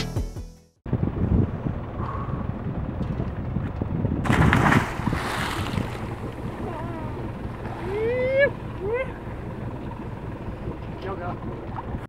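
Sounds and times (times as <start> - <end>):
wind noise on microphone: 0.9 - 8.4
loud splash into water: 4.2 - 6.2.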